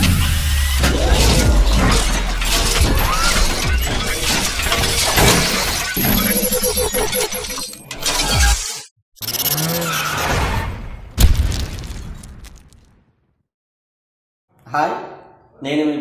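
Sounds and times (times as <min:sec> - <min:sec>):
deep low rumble: 0:00.0 - 0:03.9
dramatic music: 0:00.0 - 0:06.9.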